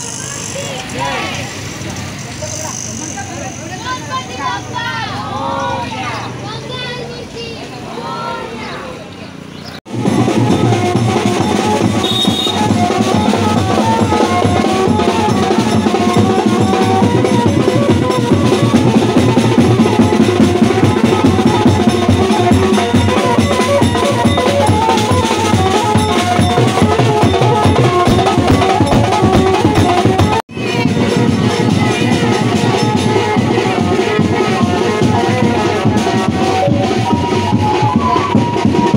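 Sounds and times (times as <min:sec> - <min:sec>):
procession drumming: 0:09.9 - 0:38.9.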